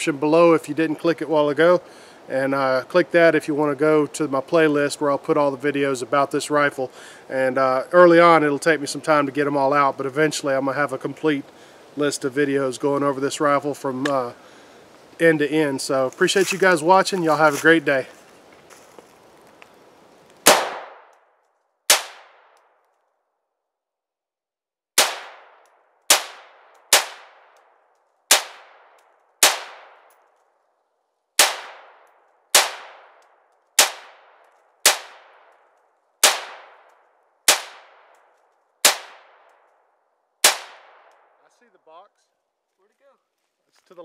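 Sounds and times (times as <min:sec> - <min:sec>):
rifle single shots: 0:20.4 - 0:21.1, 0:21.9 - 0:22.6, 0:25.0 - 0:27.6, 0:28.3 - 0:30.1, 0:31.4 - 0:33.2, 0:33.8 - 0:35.6, 0:36.2 - 0:36.9, 0:37.5 - 0:38.2, 0:38.8 - 0:39.5, 0:40.4 - 0:41.4.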